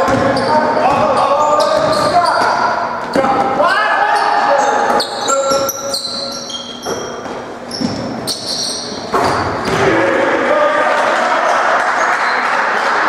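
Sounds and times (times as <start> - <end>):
shoes squeaking on hardwood floor: 0.0 - 9.8
voices and gym noise: 0.0 - 13.0.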